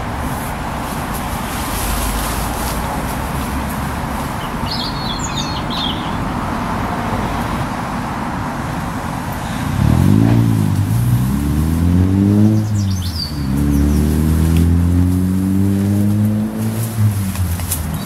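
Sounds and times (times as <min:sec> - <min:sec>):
rumble of road traffic: 0:00.0 - 0:18.0
vehicle engine accelerating: 0:00.0 - 0:18.0
birds chirping: 0:02.7 - 0:07.5, 0:12.2 - 0:15.7, 0:17.8 - 0:18.0.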